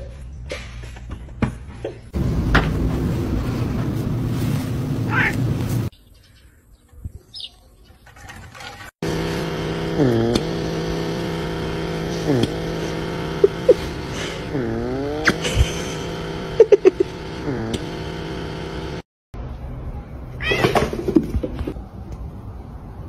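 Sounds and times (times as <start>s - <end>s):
small electric motor whirring: 9.0s - 19.0s.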